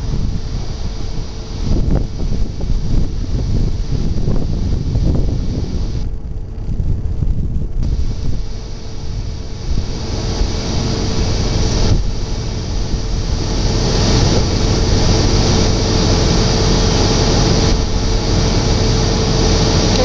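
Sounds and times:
rushing mud and water: 0.0s - 6.0s, 7.8s - 20.0s
truck engine running hard: 7.8s - 20.0s.

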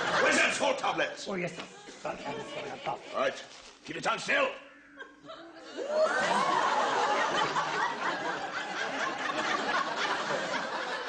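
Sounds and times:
studio audience laughing: 0.0s - 0.7s, 2.0s - 3.3s, 5.2s - 11.0s.

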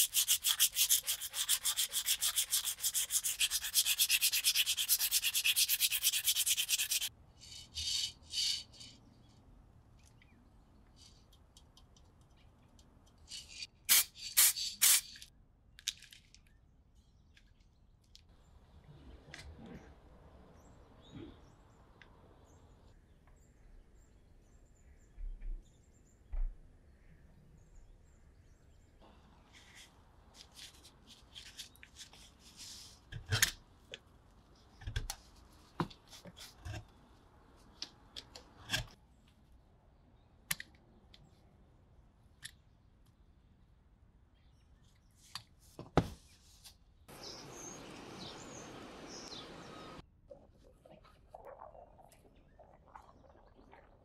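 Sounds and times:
steady outdoor hiss: 47.1s - 50.0s.

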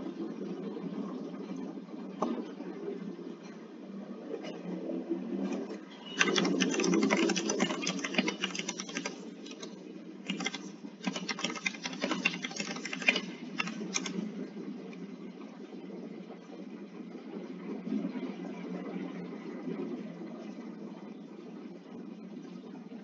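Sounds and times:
low background hum: 0.0s - 23.0s
rapid keyboard typing: 6.1s - 14.4s.

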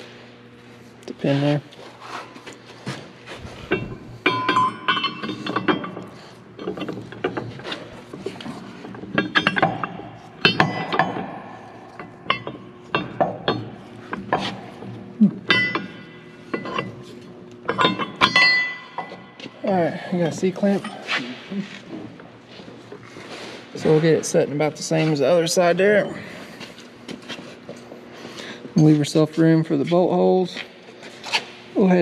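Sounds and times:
metal clinks and knocks: 3.4s - 21.2s.

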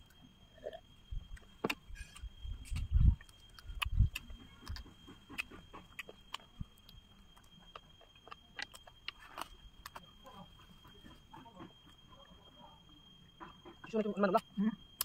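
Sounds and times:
crisp chewing crackles: 0.8s - 12.4s.

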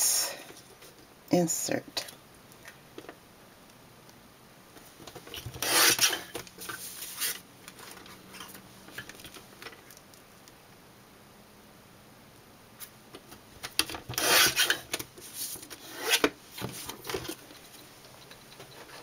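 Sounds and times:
paper trimmer blade scraping: 5.6s - 6.3s, 14.2s - 14.8s, 15.8s - 16.3s.

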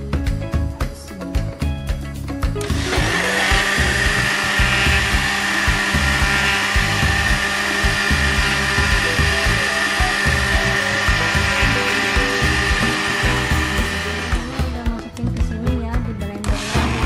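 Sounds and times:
blender whining: 2.5s - 15.2s, 16.4s - 17.0s.

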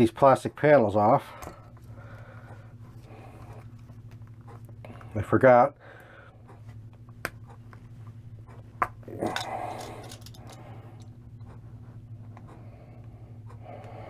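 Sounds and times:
low electrical hum: 0.0s - 14.0s
small clicks and handling noises: 6.5s - 11.6s.

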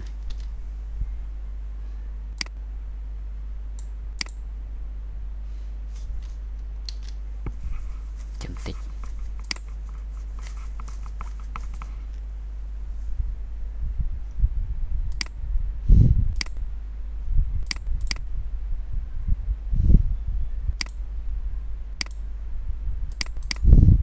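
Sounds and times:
steady low hum: 0.0s - 24.0s
computer mouse clicking: 8.6s - 12.2s, 15.1s - 15.4s, 16.4s - 16.6s, 17.6s - 18.2s, 22.0s - 22.2s, 23.1s - 23.6s
dull low thumps: 22.6s - 24.0s.

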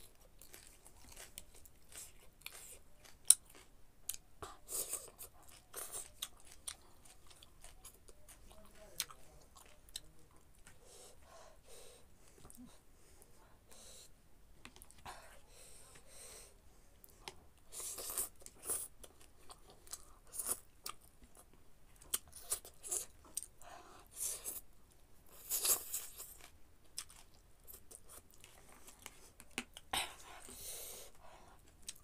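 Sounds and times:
wet chewing: 0.0s - 10.8s.

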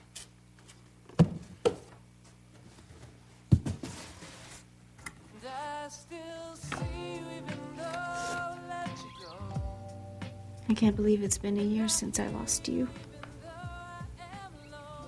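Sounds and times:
cardboard boxes thumping: 3.5s - 4.2s
soft music: 5.3s - 15.0s.

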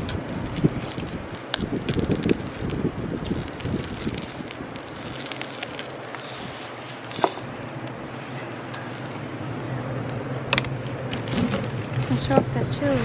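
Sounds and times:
shellfish sizzling on a grill: 0.0s - 11.0s
crackles and pops: 0.0s - 12.4s.

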